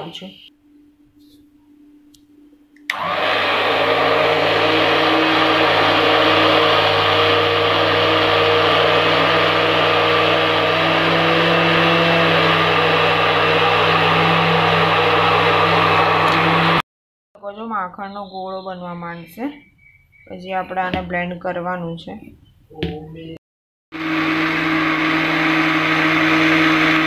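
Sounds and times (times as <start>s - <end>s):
immersion blender running: 2.9s - 16.8s, 23.9s - 27.0s.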